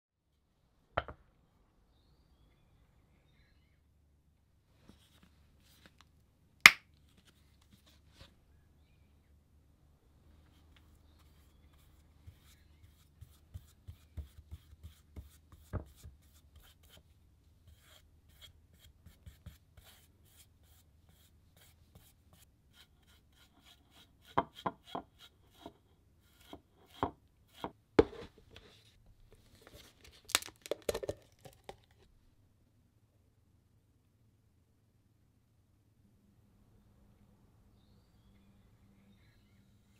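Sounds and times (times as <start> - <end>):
tool scraping paint on wood: 22.8 - 28.7.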